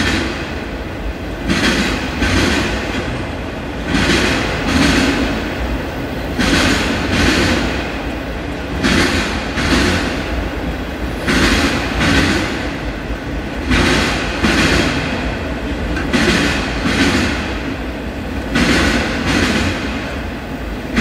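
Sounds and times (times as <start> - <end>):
train rumble: 0.0 - 21.0
train wheels clacking: 0.0 - 21.0.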